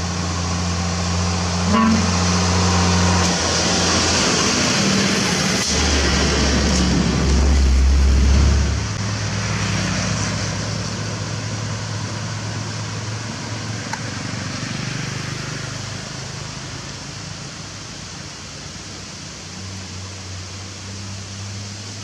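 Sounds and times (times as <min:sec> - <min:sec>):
motorcycles passing: 0:00.0 - 0:17.2
truck diesel engine: 0:00.0 - 0:22.0.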